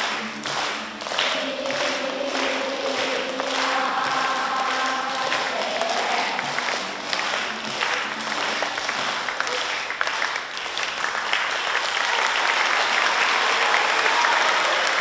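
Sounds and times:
crowd applauding: 0.0s - 15.0s
voices: 1.2s - 6.7s.

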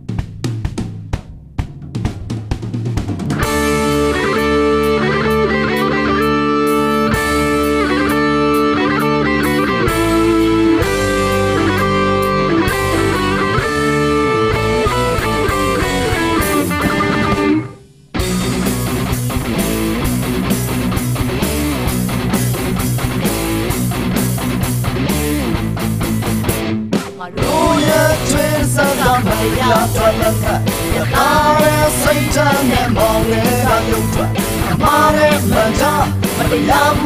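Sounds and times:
drum hits: 0.0s - 4.0s, 26.8s - 36.8s
sustained guitar chords: 3.3s - 37.0s.

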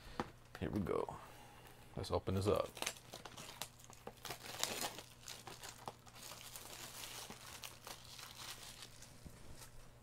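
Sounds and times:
plastic shrink wrap crinkling: 2.4s - 10.0s.

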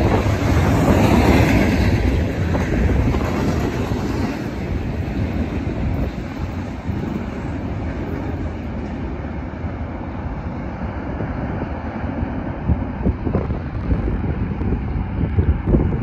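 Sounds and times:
freight train cars rolling: 0.0s - 16.0s
wind buffeting microphone: 0.0s - 16.0s.

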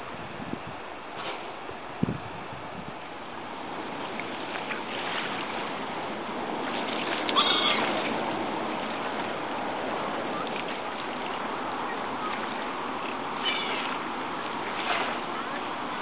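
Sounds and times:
water wash: 0.0s - 16.0s
gulls splashing on water: 2.9s - 16.0s
gull call: 7.3s - 8.0s, 13.4s - 14.0s.

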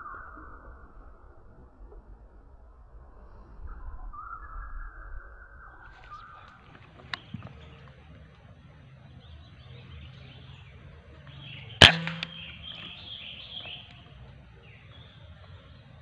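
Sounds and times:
air rifle shot: 11.8s - 13.2s.

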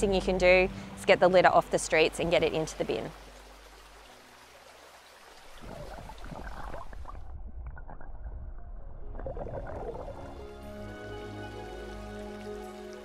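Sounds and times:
water splashing: 2.3s - 10.8s.

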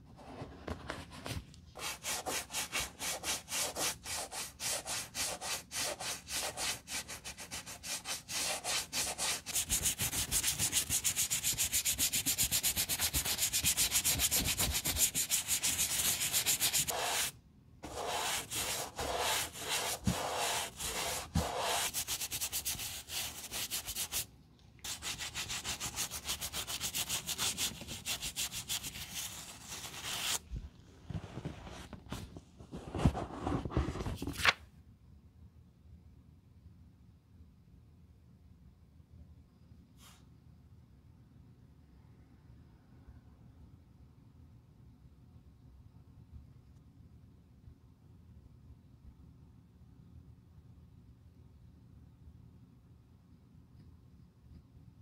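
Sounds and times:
bristle brush scrubbing leather boot: 1.8s - 24.2s.

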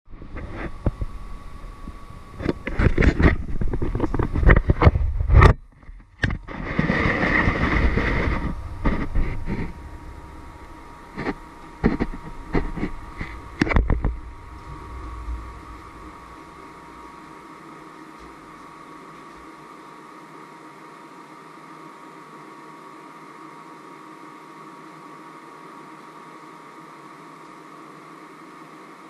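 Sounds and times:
scraping and rubbing: 0.3s - 1.1s, 1.8s - 18.8s.

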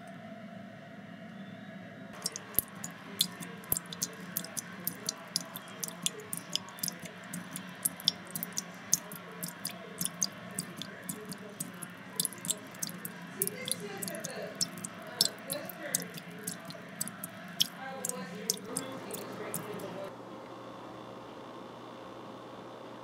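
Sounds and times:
sharp crackling clicks: 2.2s - 19.7s.

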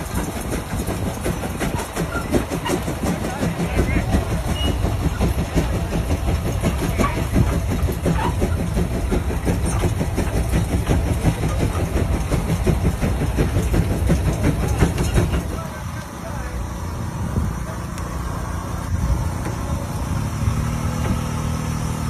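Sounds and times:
steam traction engine chugging: 0.0s - 22.0s.

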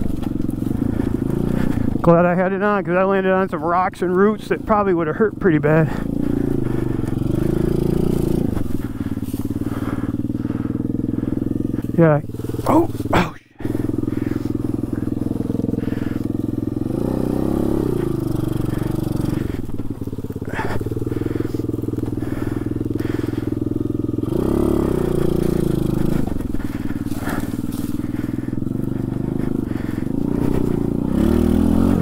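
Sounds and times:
motorbike engine revving: 0.0s - 32.0s.

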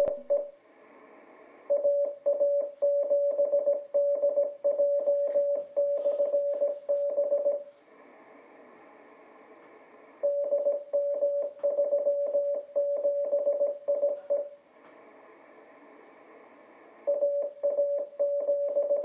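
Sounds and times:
morse code beeps: 1.7s - 7.6s, 10.2s - 14.6s, 17.1s - 19.0s
radio band noise hiss: 5.1s - 7.0s, 7.6s - 10.2s.

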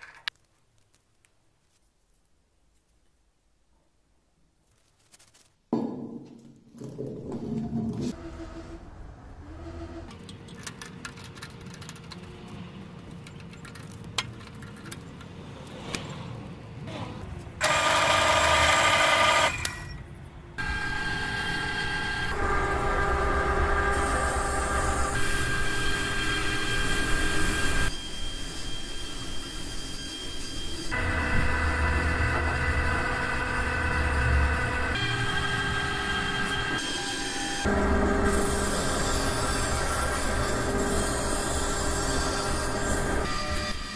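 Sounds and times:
drill press motor humming: 17.6s - 19.7s.

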